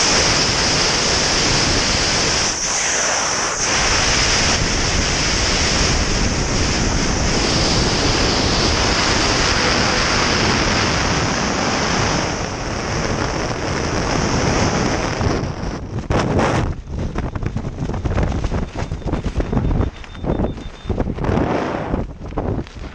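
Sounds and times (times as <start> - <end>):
freefall wind buffeting microphone: 0.0 - 22.9.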